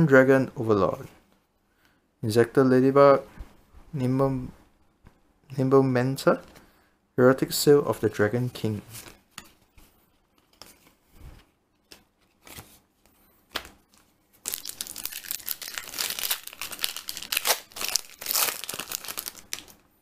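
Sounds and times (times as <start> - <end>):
foil pack crinkling and tearing: 14.4 - 19.8.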